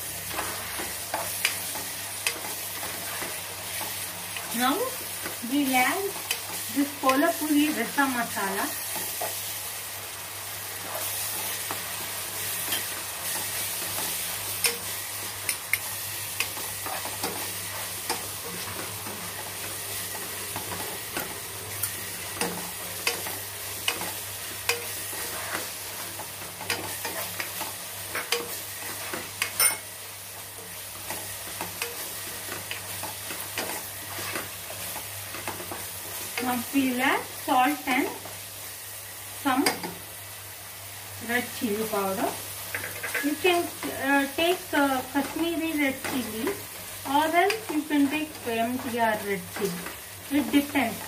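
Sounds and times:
masala sizzling in a pan: 0.0s - 51.0s
spatula scraping a pan: 16.4s - 29.9s.

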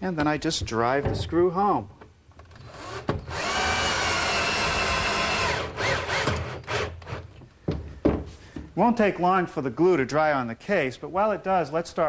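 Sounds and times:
drill motor whine: 2.9s - 6.9s.

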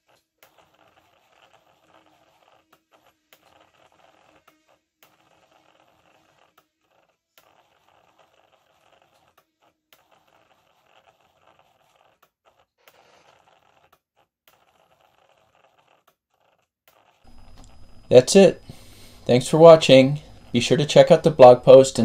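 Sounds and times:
pen plotter motors whirring: 0.0s - 22.0s.

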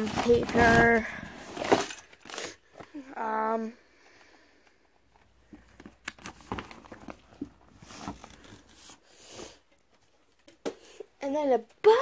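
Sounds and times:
paper rustling and crinkling: 0.0s - 2.8s, 5.5s - 9.0s.

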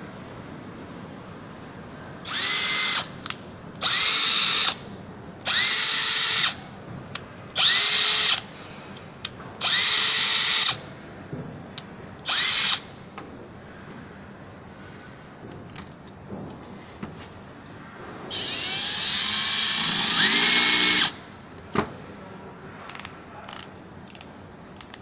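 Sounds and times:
cordless drill whining: 2.3s - 3.1s, 3.8s - 4.8s, 5.5s - 6.6s, 7.6s - 8.5s, 9.6s - 10.8s, 12.3s - 12.9s, 18.3s - 21.2s.

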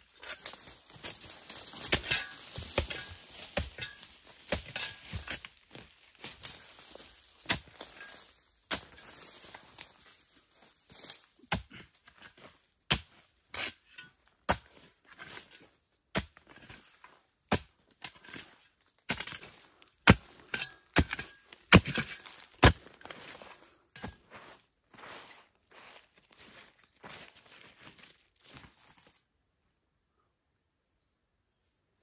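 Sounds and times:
soil and dry leaves crackling: 0.0s - 29.7s
hoe chopping into earth: 19.1s - 23.0s.

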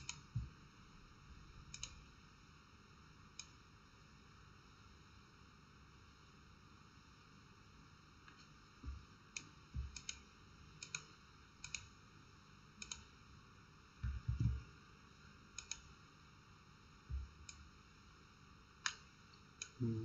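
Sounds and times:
computer mouse clicking: 0.0s - 0.3s, 1.7s - 2.1s, 3.4s - 3.6s, 9.3s - 10.2s, 10.8s - 11.9s, 12.8s - 13.1s, 15.6s - 15.9s.

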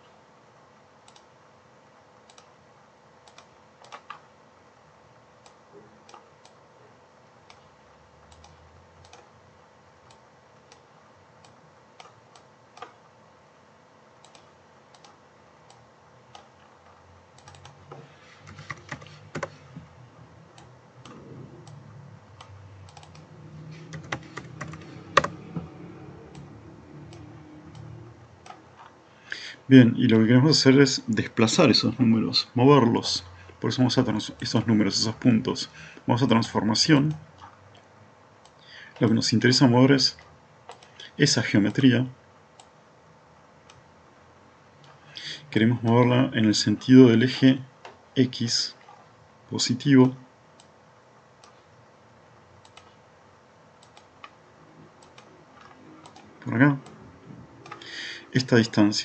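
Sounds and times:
keyboard and mouse clicks: 1.1s - 1.3s, 3.2s - 4.2s, 5.4s - 6.6s, 7.4s - 9.3s, 14.2s - 19.9s, 20.5s - 29.0s, 40.2s - 41.0s, 52.6s - 53.0s, 53.8s - 54.4s, 55.0s - 57.0s, 57.6s - 58.0s
low rumble: 21.0s - 28.4s.

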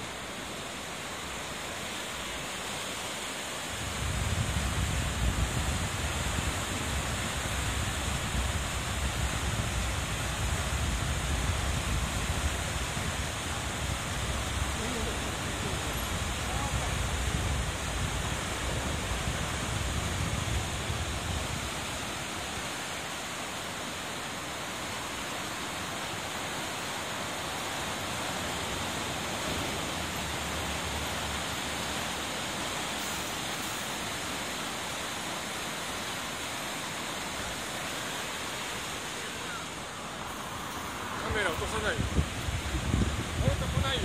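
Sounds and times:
river water rushing: 0.0s - 44.0s.

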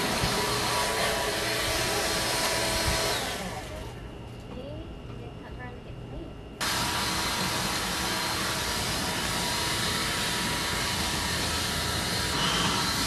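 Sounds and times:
leaf blower hissing: 0.0s - 3.9s, 6.6s - 13.0s
faint steady whine: 0.0s - 13.0s.

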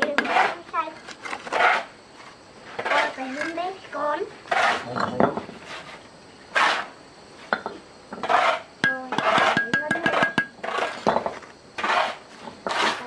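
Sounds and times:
utensils scraping pots: 2.7s - 3.6s, 4.5s - 6.9s, 7.6s - 13.0s.

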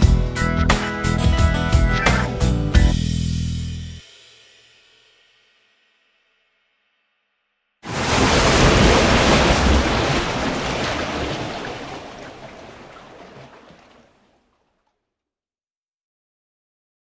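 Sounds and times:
water splash and rushing surge: 7.8s - 14.4s.

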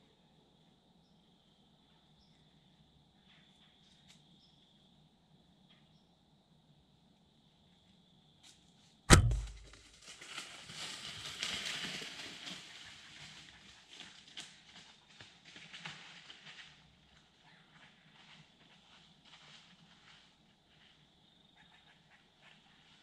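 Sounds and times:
bow shot crack: 9.1s - 9.8s
deer crashing through dry leaves: 9.1s - 16.8s.

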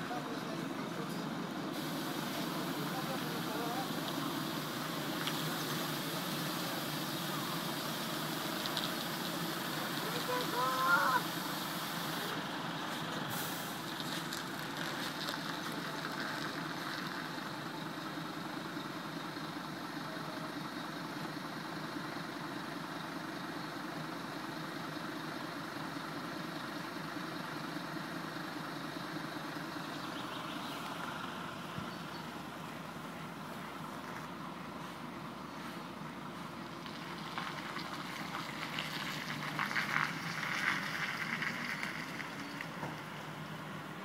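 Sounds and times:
garbage truck diesel engine running: 0.0s - 40.9s
brief hiss: 1.8s - 14.3s.

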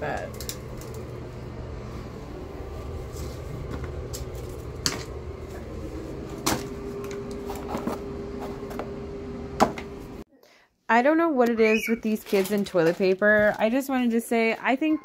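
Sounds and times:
steady low hum: 0.0s - 10.3s
paper rustling: 11.8s - 13.8s.

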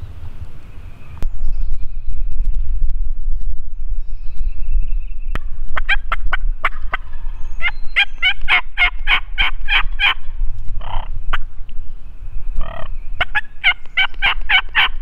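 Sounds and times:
wild turkey calling: 5.8s - 10.2s, 12.6s - 15.0s.

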